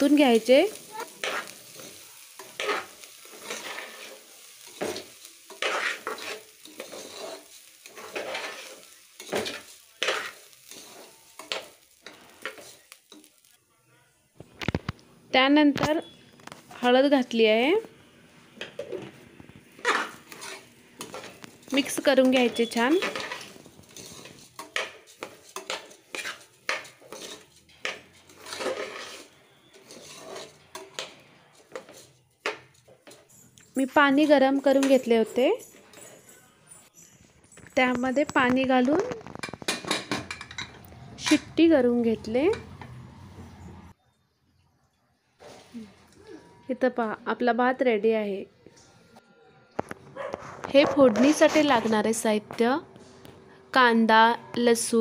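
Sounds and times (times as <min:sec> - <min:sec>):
metal spatula scraping rice: 0:00.3 - 0:13.4, 0:19.7 - 0:33.5.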